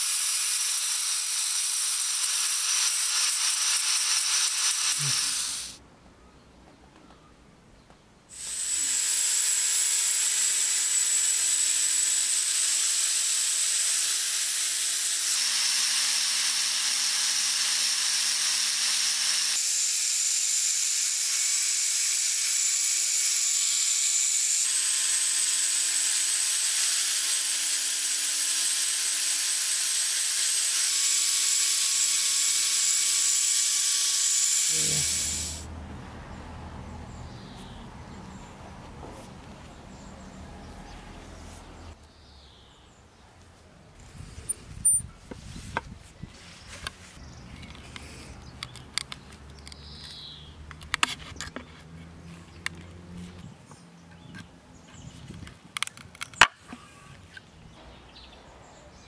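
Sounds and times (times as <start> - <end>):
angle grinder grinding metal: 0.0 - 5.8, 8.3 - 35.6
outdoor background noise: 0.0 - 59.0.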